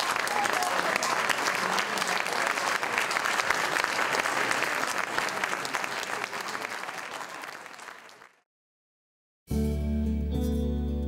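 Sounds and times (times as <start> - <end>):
crowd applauding: 0.0 - 8.4.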